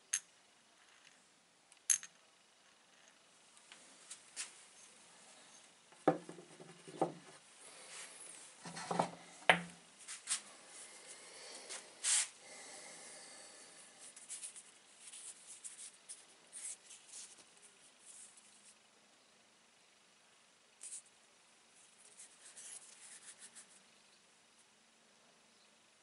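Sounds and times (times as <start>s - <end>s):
rock knocking on table: 6.0s - 7.2s, 8.8s - 9.7s.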